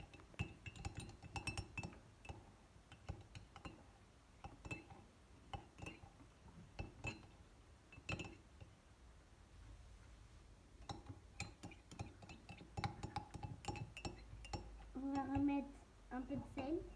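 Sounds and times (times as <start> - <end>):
spoon clinking in ceramic mug: 0.0 - 3.8, 4.4 - 6.0, 6.8 - 8.8, 10.8 - 15.5.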